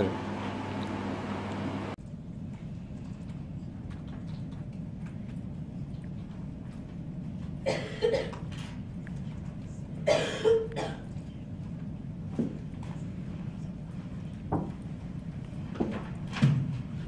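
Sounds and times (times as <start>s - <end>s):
steady low hum: 0.0s - 17.0s
person coughing: 7.6s - 8.4s, 10.0s - 11.1s.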